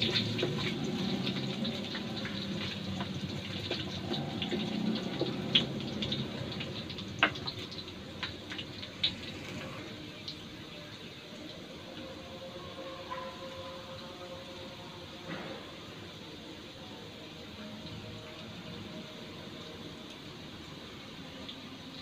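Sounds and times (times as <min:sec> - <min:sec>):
oil popping and crackling: 0:00.0 - 0:12.1
potatoes sizzling in hot oil: 0:00.0 - 0:12.1.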